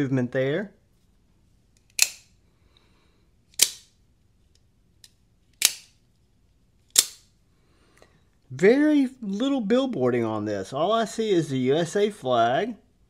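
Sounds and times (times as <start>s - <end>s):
automatic knife blade snapping: 1.8s - 2.4s, 3.5s - 3.9s, 5.6s - 6.0s, 6.9s - 7.3s.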